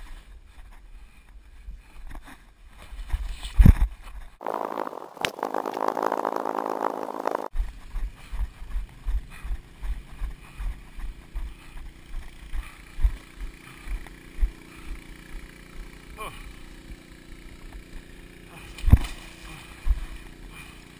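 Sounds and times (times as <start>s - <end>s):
wind rumble on microphone: 2.9s - 11.5s
muffled rushing noise: 4.4s - 7.6s.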